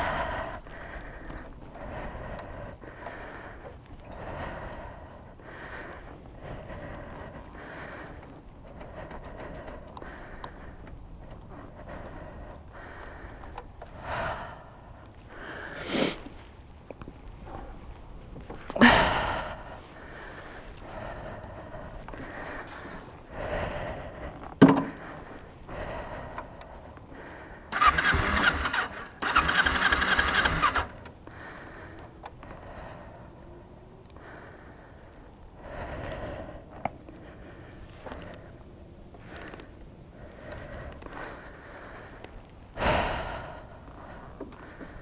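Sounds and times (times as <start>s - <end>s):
person breathing hard: 0.0s - 16.5s, 17.2s - 45.0s
low steady rumble: 0.0s - 29.3s, 30.8s - 45.0s
motorcycle engine cranking on starter: 27.7s - 31.1s.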